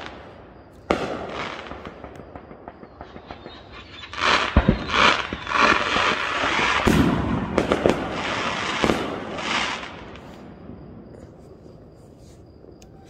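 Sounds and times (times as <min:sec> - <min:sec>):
firework bangs: 0:00.0 - 0:11.4
firework crackling: 0:00.9 - 0:10.5.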